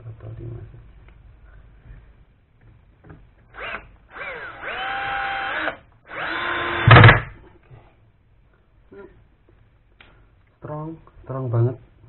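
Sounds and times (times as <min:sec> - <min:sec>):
cordless drill whirring: 0:03.5 - 0:07.2.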